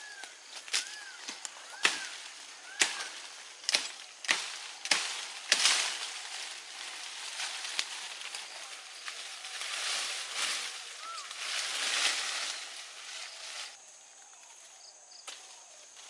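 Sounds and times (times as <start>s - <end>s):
leaves and stems rustling: 0.0s - 16.0s
knife chopping stems: 0.6s - 6.4s.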